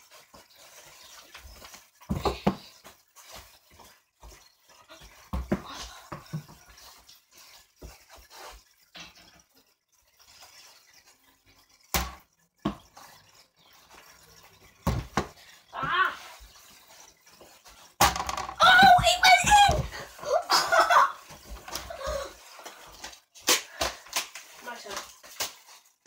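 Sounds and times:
ball hitting basketball hoop: 5.3s - 6.5s, 11.9s - 12.8s, 14.8s - 16.0s, 18.0s - 20.0s.

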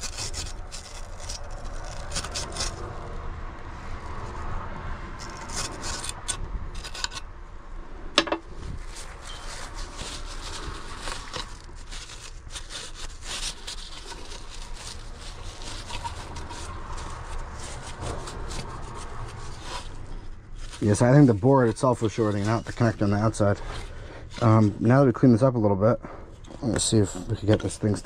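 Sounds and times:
scraping on circuit board: 0.0s - 3.0s, 5.2s - 7.3s, 8.7s - 24.7s.

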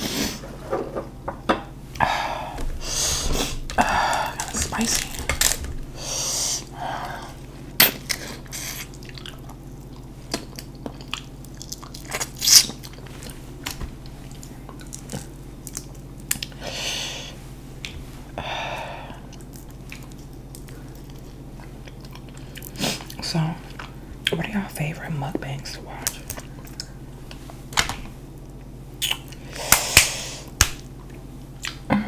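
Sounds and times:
breathy sounds: 1.9s - 7.5s, 18.3s - 19.4s
shellfish shells cracking: 3.7s - 6.0s
chewing and mouth noises: 7.4s - 13.4s, 14.0s - 16.6s, 19.2s - 24.4s, 26.0s - 27.0s.

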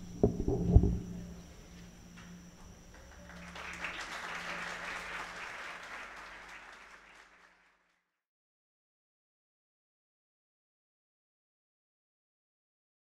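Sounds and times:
audience applauding: 2.9s - 8.0s.

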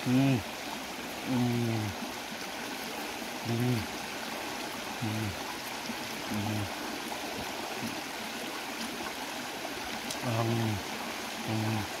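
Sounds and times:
water running over rocks: 0.0s - 12.0s
man humming while eating: 1.3s - 2.0s, 3.5s - 3.9s, 6.3s - 6.8s.

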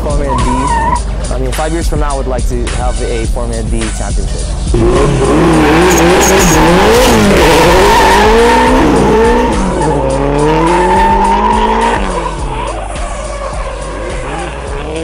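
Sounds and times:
tyres squealing: 0.0s - 1.1s
car engine revving hard: 4.6s - 15.0s.

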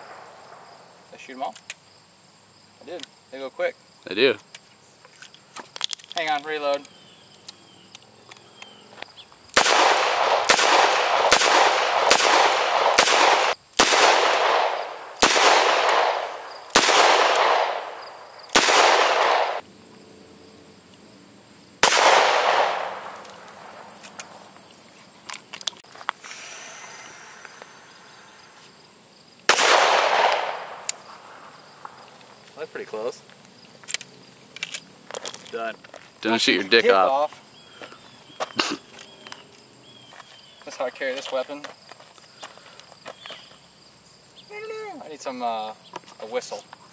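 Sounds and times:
revolver gunshots echoing: 9.6s - 19.6s, 21.8s - 23.9s, 29.5s - 30.9s.

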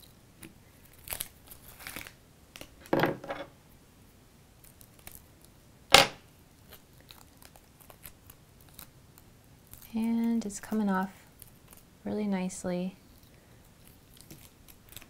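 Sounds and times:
crackling rustle: 0.0s - 2.9s, 4.6s - 5.6s, 6.5s - 15.0s.

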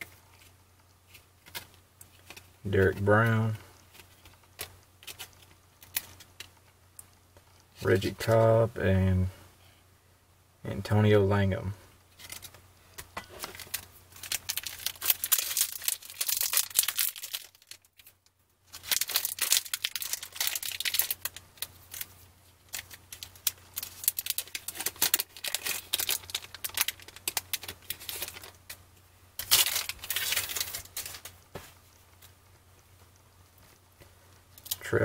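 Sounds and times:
foil wrapper crinkling and tearing: 4.0s - 6.5s, 13.4s - 28.8s, 29.4s - 31.4s.

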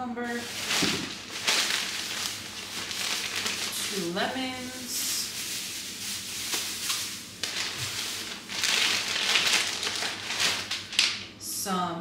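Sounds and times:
plastic bags crinkling: 0.3s - 11.4s.

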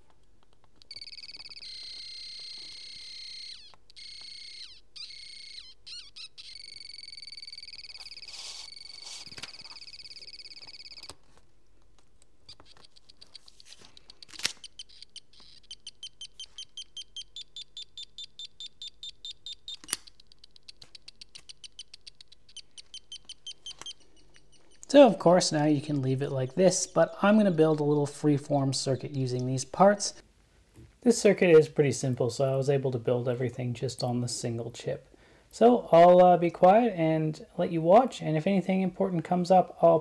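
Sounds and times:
piezo buzzer buzzing and chirping: 0.8s - 11.1s, 14.0s - 24.9s
sharp clicks: 12.2s - 25.0s.

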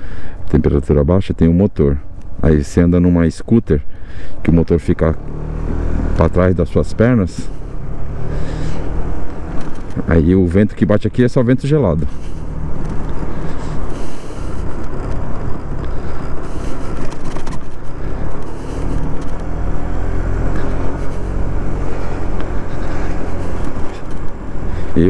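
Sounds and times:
scooter engine running: 12.1s - 25.0s.

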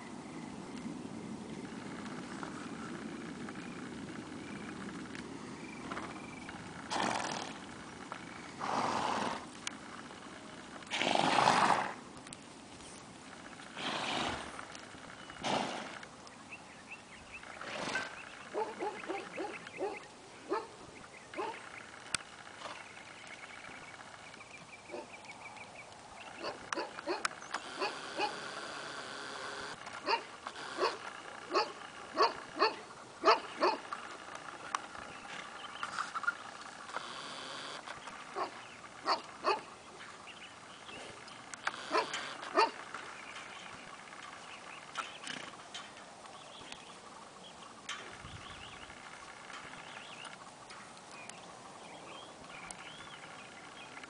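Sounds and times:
short animal calls: 26.4s - 33.9s, 41.7s - 42.8s.

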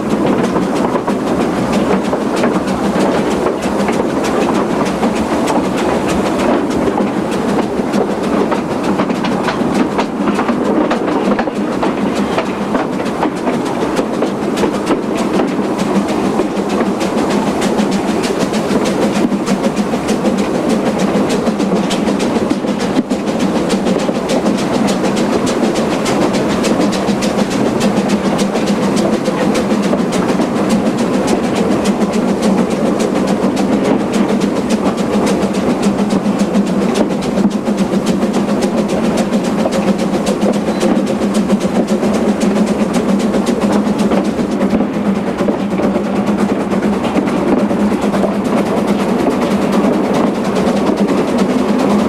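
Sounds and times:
train rumbling: 0.0s - 52.0s
wheel clicks on rails: 0.0s - 52.0s.

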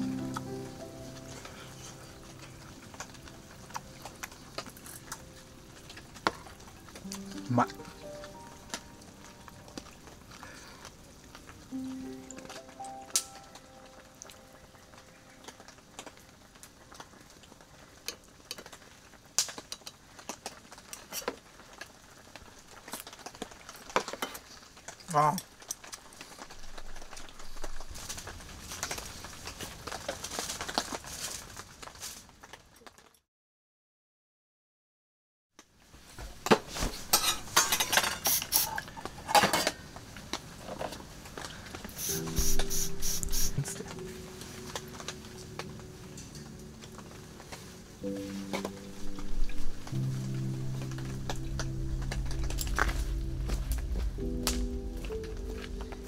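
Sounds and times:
music: 0.0s - 18.0s, 41.9s - 56.0s
faint rain patter: 0.0s - 33.2s, 35.6s - 56.0s
cutlery and metal dishes clinking: 36.6s - 39.8s.

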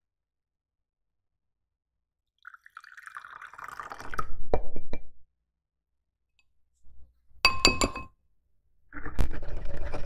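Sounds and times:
water pouring into glass bowl: 2.4s - 4.3s.

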